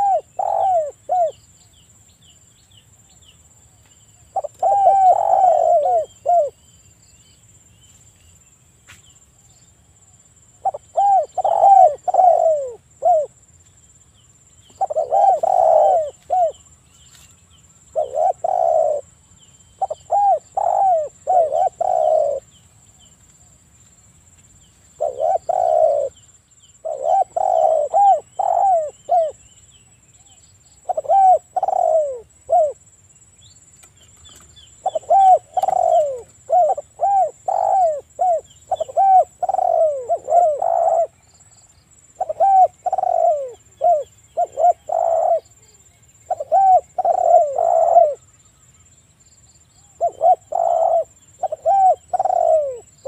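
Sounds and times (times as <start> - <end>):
dove cooing: 0.0 - 1.4, 4.3 - 6.6, 10.6 - 13.4, 14.7 - 16.7, 17.9 - 19.2, 19.8 - 22.5, 25.0 - 26.2, 26.8 - 29.4, 30.3 - 32.9, 34.3 - 41.2, 42.2 - 48.3, 49.8 - 53.0.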